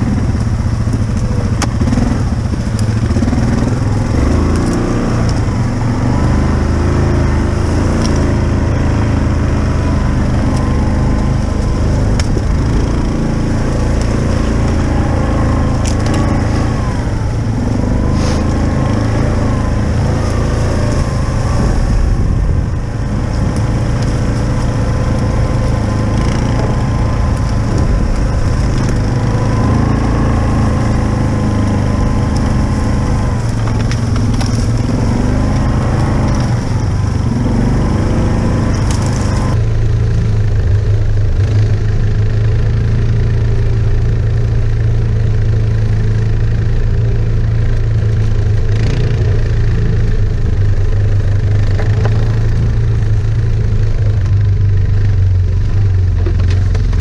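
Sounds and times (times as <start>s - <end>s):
atv engines running: 0.0s - 57.0s.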